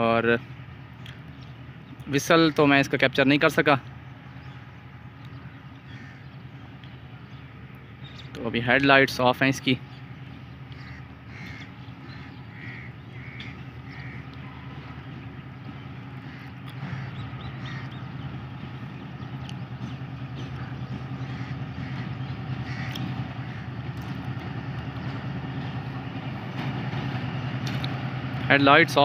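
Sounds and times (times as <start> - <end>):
diesel locomotive engine: 0.0 - 29.0
crows cawing: 5.8 - 6.9, 10.6 - 18.5, 20.4 - 25.2.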